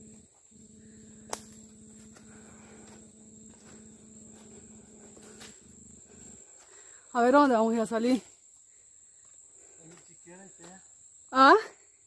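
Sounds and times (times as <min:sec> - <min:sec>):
low steady drone: 0:00.0 - 0:06.5
insects trilling: 0:00.0 - 0:12.0.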